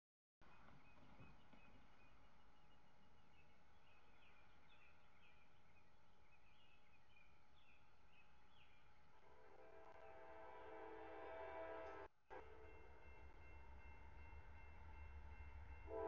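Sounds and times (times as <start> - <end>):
distant train horn: 9.2 - 16.0.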